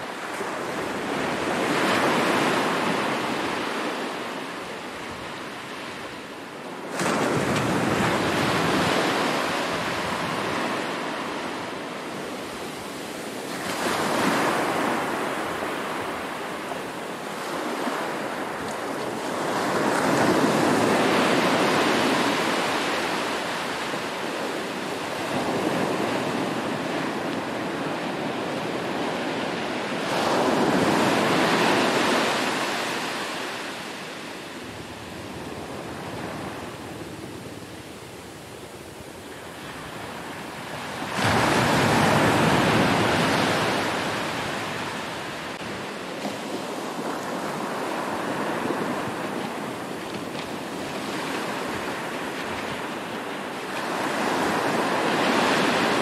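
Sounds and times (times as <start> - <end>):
ocean waves breaking on beach: 0.0 - 56.0.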